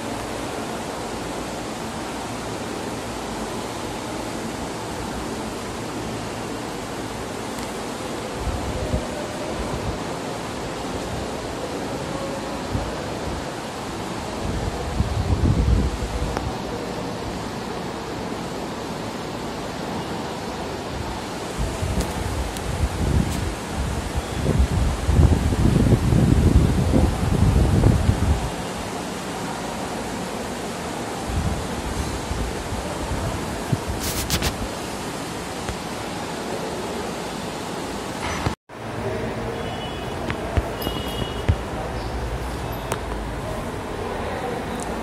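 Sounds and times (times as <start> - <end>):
ceiling fan air rush: 0.0 - 45.0.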